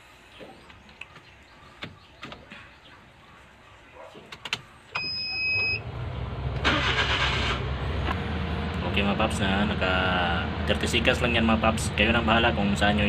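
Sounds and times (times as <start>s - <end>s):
car engine idling: 5.6s - 13.0s.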